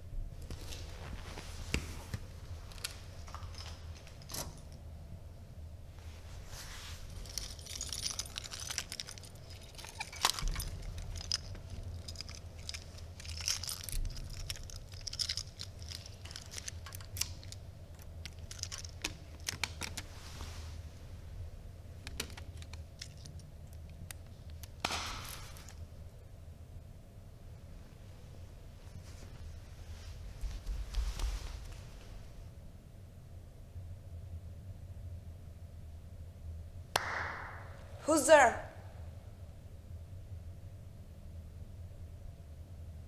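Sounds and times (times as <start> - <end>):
low steady hum: 0.0 - 43.0
hands fumbling with small objects: 0.4 - 4.8, 6.0 - 21.2, 21.9 - 25.8.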